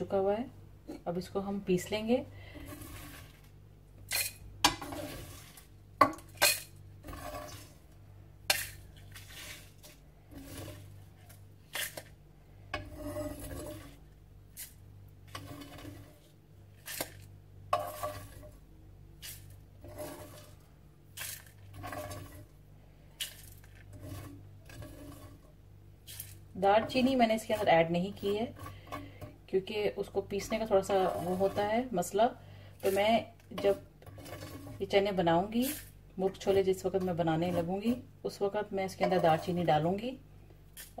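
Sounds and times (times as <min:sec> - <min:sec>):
seeds rattling and scraping: 0:02.4 - 0:05.7, 0:06.4 - 0:07.9, 0:08.5 - 0:18.6, 0:19.2 - 0:29.2, 0:30.4 - 0:32.2, 0:32.8 - 0:38.0.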